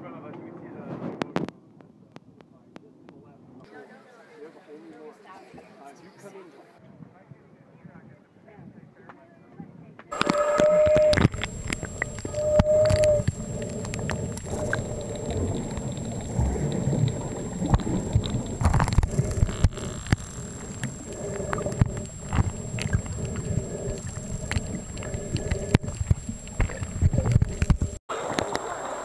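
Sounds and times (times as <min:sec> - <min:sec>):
brief steady tone: 0:10.1 - 0:28.0
underwater clicks: 0:10.1 - 0:28.7
underwater rumbling and gurgling: 0:10.1 - 0:28.7.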